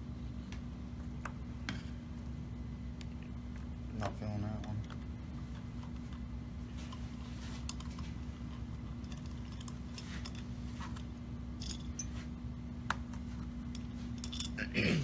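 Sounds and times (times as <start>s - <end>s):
metallic clicks and clinks: 13.7s - 14.6s.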